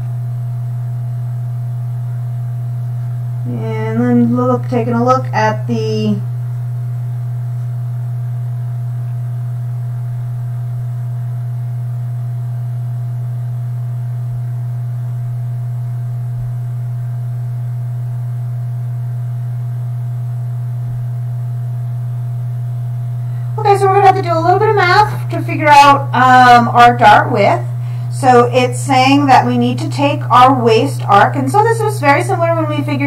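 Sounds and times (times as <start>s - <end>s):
low electrical hum: 0.0s - 33.0s.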